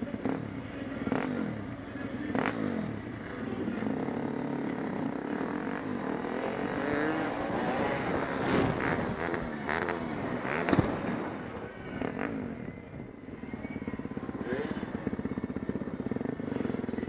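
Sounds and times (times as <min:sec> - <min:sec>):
atv engine revving: 0:00.0 - 0:17.0.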